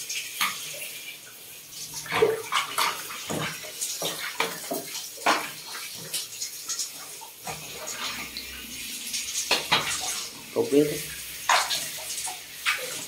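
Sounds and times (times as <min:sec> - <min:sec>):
water splashing on plastic: 0:01.8 - 0:13.0
shower head spraying water: 0:06.0 - 0:13.0.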